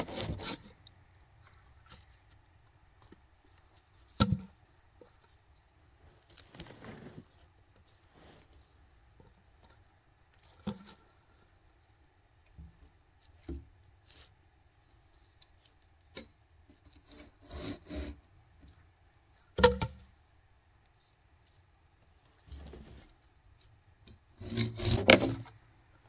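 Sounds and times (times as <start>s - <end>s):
logs scraping together: 0.0s - 0.8s, 6.3s - 7.3s, 17.0s - 18.2s, 24.4s - 25.6s.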